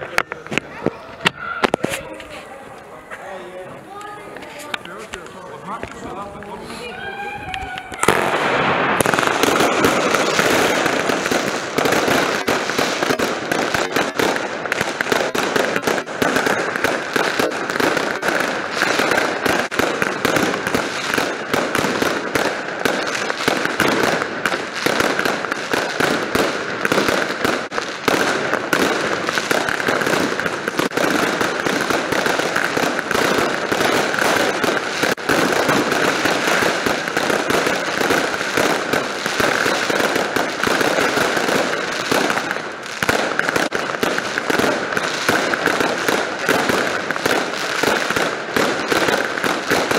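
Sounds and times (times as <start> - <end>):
fireworks bangs and crackles: 0.0 - 49.9.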